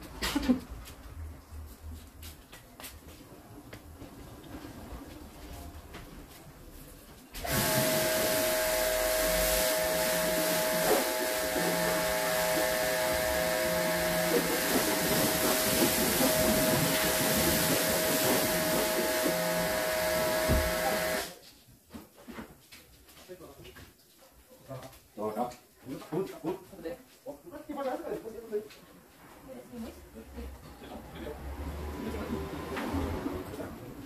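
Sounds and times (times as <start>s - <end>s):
pressure washer running: 7.4s - 21.3s.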